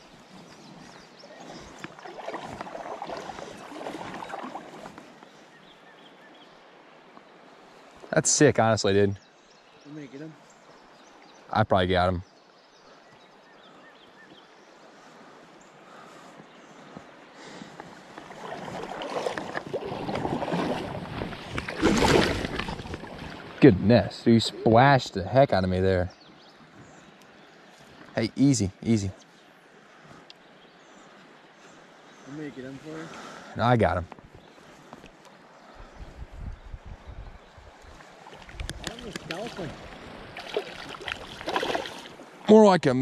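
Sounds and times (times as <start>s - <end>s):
water sloshing around legs: 0.4s - 5.2s, 17.8s - 23.6s, 37.8s - 42.4s.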